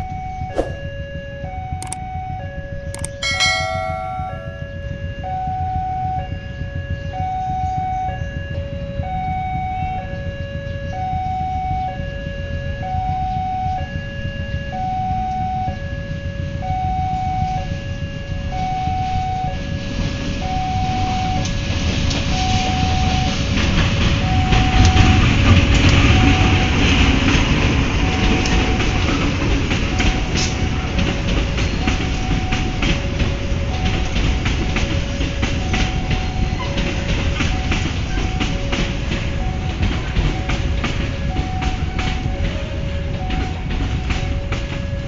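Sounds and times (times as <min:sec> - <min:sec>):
level crossing warning alarm: 0:00.0 - 0:45.0
locomotive engine rumble: 0:20.6 - 0:45.0
train wheels clicking over rail joints: 0:23.2 - 0:45.0.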